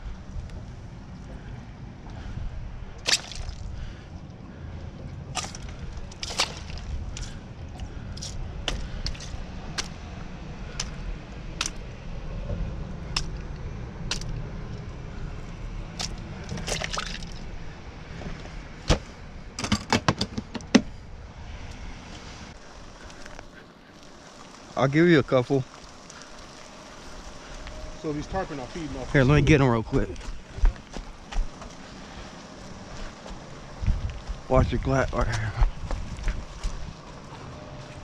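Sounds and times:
low steady rumble: 0.0 - 38.0
small water splashes: 3.0 - 4.0, 5.4 - 7.4, 16.0 - 17.5, 23.8 - 27.6
clicks and knocks in cooler: 19.6 - 20.9.

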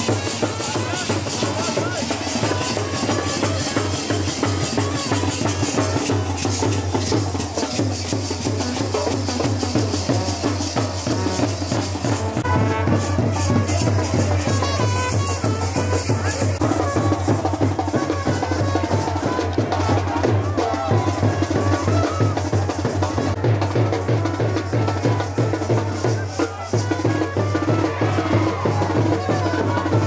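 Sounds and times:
brass melody: 0.0 - 7.7, 8.5 - 19.8
drums beating fast rhythm: 0.0 - 30.0.

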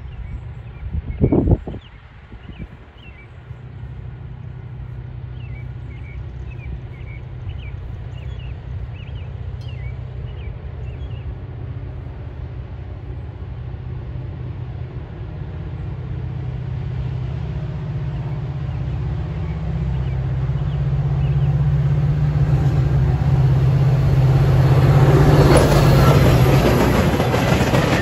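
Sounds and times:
diesel train rumble: 0.0 - 28.0
birds chirping: 5.3 - 11.4, 18.0 - 21.9.

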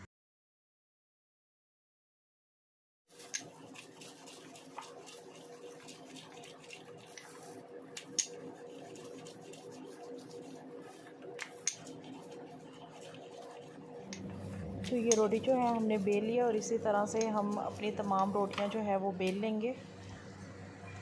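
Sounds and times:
rolling pin rubbing on dough: 3.1 - 19.4.

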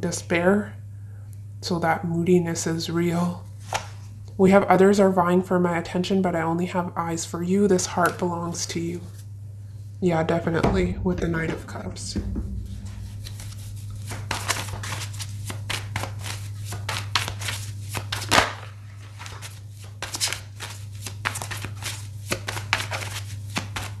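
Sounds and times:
card slap: 13.3 - 18.7
cards riffling and snapping: 14.0 - 24.0.

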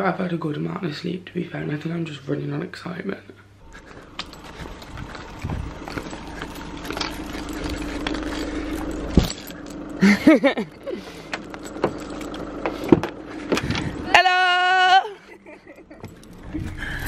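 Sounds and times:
car engine humming: 3.5 - 17.0
clicks and rattles of car door: 11.3 - 13.9.

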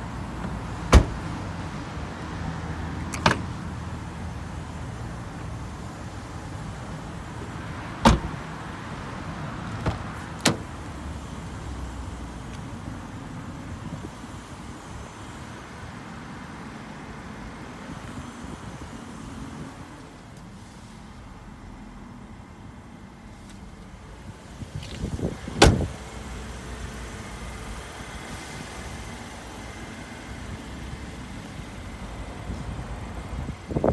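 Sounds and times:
car door thud: 0.4 - 1.3, 3.2 - 3.5, 8.0 - 8.4, 9.8 - 10.7, 25.5 - 25.9
car engine idling: 3.0 - 33.9
door latch clicks: 3.1 - 3.4.

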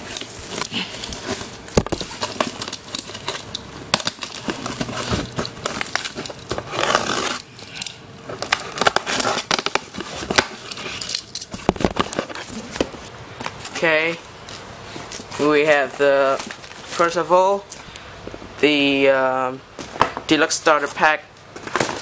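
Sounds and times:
packing paper crumpling: 0.0 - 13.8.

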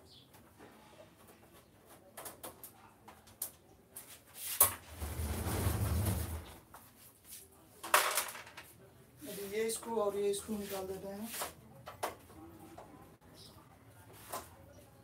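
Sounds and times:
heavy photocopier rumbling across floor: 4.8 - 6.6.

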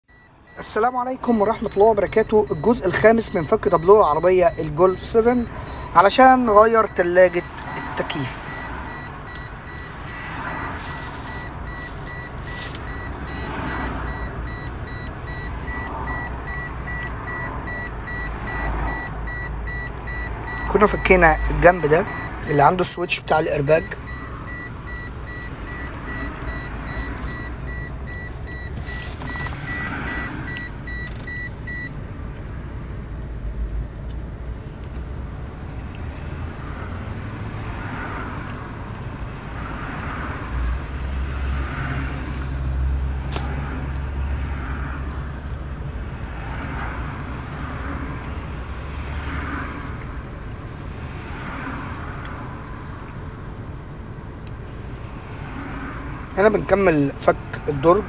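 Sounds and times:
rapid electronic beeping: 0.1 - 31.9.

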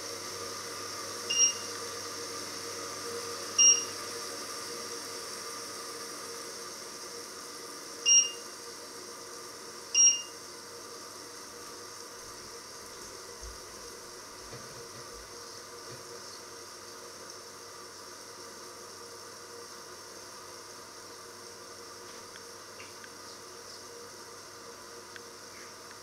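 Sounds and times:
hiss from steaming pot: 0.0 - 22.8
short electronic beeps: 1.3 - 1.6, 3.6 - 3.9, 8.1 - 8.4, 10.0 - 10.3.

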